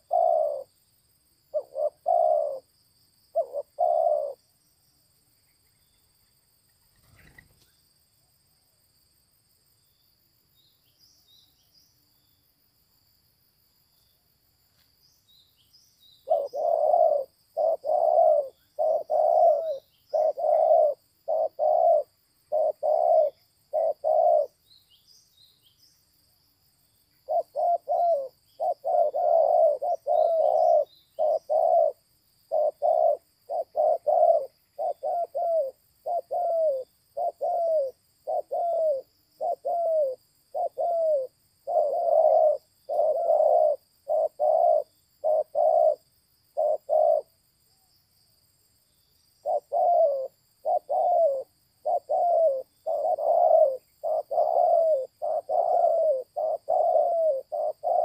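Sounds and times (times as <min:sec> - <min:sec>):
dove cooing: 0:00.0 - 0:00.8, 0:01.5 - 0:02.7, 0:03.3 - 0:04.4, 0:16.2 - 0:24.6, 0:27.2 - 0:47.4, 0:49.4 - 0:58.0
faint high insect tone: 0:00.0 - 0:58.0.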